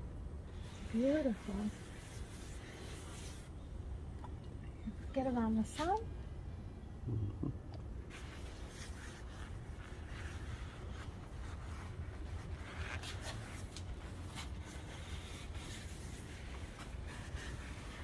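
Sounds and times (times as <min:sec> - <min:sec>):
steady low hum: 0:00.0 - 0:18.0
cloth rubbing on wood: 0:00.6 - 0:03.5, 0:08.1 - 0:18.0.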